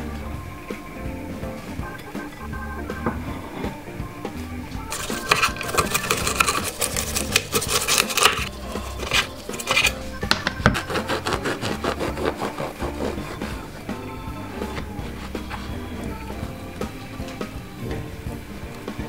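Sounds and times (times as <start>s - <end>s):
faint background music: 0.0s - 19.0s
knife crunching crisp skin: 5.0s - 10.0s
knife sawing bread crust: 5.0s - 10.0s, 10.8s - 13.8s.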